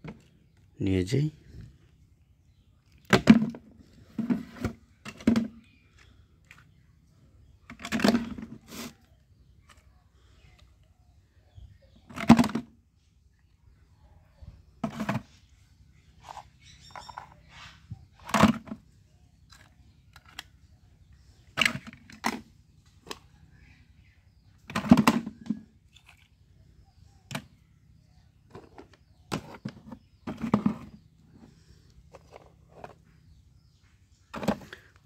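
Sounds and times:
toys dropping into plastic bucket: 12.1 - 12.7, 24.7 - 25.6.

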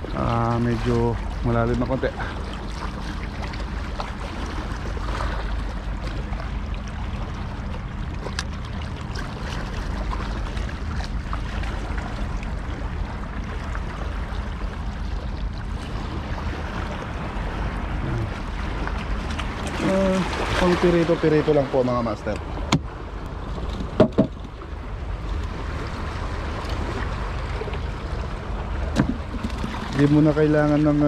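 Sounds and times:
low rumble: 0.0 - 31.0
waves splashing against rocks: 15.8 - 24.6, 25.3 - 31.0.

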